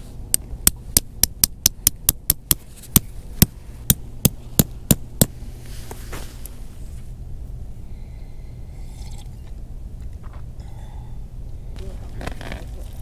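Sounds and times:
hammer striking tent pegs: 0.3 - 5.4.

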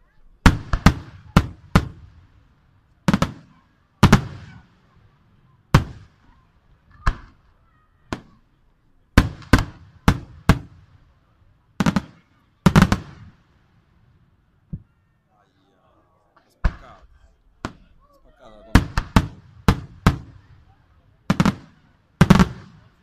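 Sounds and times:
firework shells booming: 0.4 - 2.3, 3.1 - 4.8, 9.2 - 11.0, 11.8 - 13.4, 16.6 - 18.0, 18.7 - 20.6, 21.2 - 23.0.

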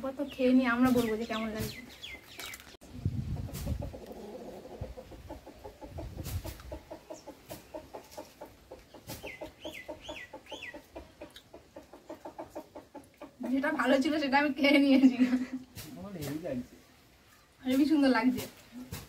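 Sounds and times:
bird chirps: 0.2 - 2.8, 8.9 - 10.9
hen clucking: 3.3 - 14.2.

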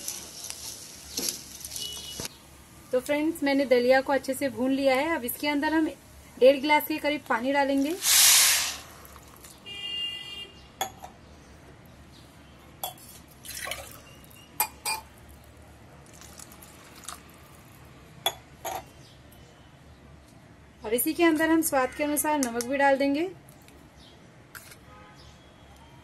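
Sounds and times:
pops and crackles in pot: 0.0 - 2.3
water splashing into pot: 7.8 - 9.6, 13.3 - 14.1, 16.0 - 17.2.

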